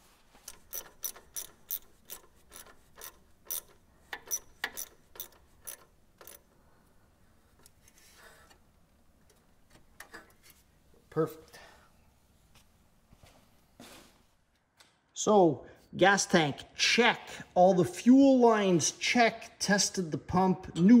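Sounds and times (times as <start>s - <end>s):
hand ratchet clicking: 0.4s - 6.6s.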